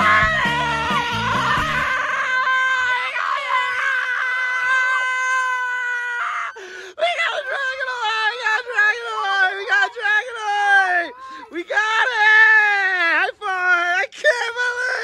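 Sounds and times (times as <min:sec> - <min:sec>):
background music with a beat: 0:00.0 - 0:01.9
children screaming: 0:00.0 - 0:13.0.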